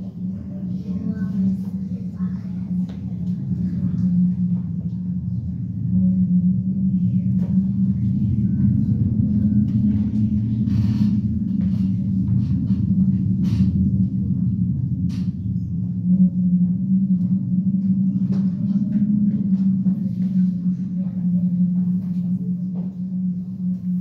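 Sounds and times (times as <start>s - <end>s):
low steady drone: 0.0s - 24.0s.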